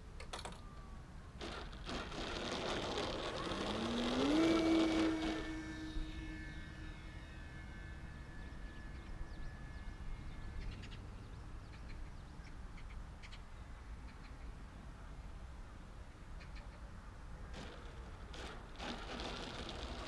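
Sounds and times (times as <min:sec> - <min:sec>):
model plane motor whine: 0:00.4 - 0:11.3, 0:17.5 - 0:20.0.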